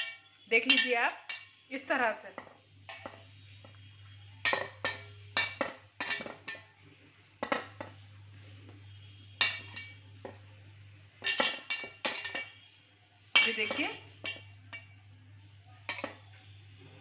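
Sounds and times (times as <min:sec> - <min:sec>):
clinks against steel bowl: 0:00.0 - 0:01.6, 0:02.4 - 0:03.8, 0:04.4 - 0:06.7, 0:09.4 - 0:10.5, 0:11.2 - 0:12.7, 0:13.4 - 0:15.1, 0:15.8 - 0:16.3
faint low hum: 0:06.2 - 0:17.0.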